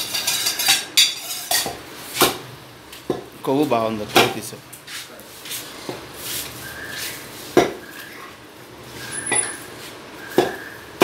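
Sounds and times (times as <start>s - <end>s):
knife chopping on wooden block: 7.6s - 7.8s.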